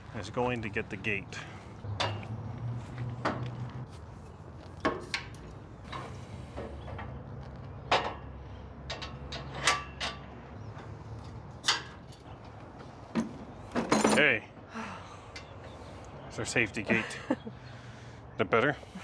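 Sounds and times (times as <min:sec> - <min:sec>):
metal gate knocks and clicks: 0:02.0 - 0:02.3, 0:07.9 - 0:10.3.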